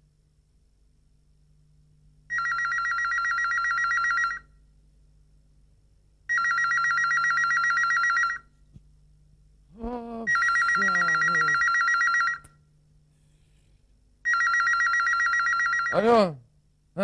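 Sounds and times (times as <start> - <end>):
telephone ringing with warbling trill: 2.3 - 4.5, 6.3 - 8.5, 10.3 - 12.4, 14.2 - 16.0.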